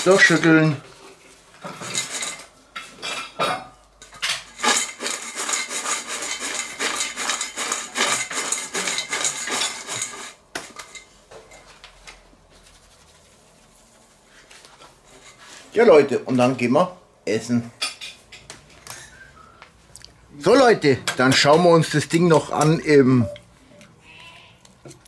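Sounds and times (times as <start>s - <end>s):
fries rattling in metal bowl: 0.0s - 0.8s, 1.6s - 2.5s, 4.2s - 11.1s.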